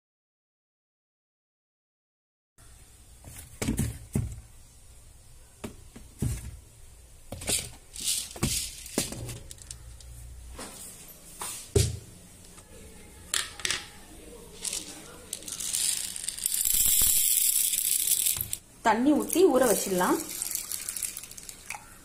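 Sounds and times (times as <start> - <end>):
plastic tubs and jars rattling: 7.3 - 9.8.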